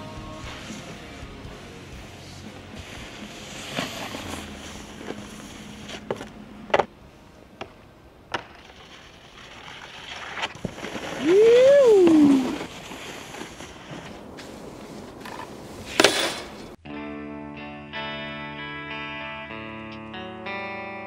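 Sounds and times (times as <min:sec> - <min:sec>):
snowboard clacking on concrete: 0:00.0 - 0:16.8
person shouting: 0:11.2 - 0:12.6.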